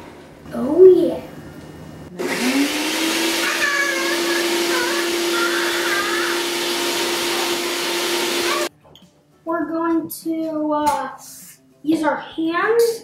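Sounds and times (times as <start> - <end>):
food processor grating coconut: 2.2 - 8.7.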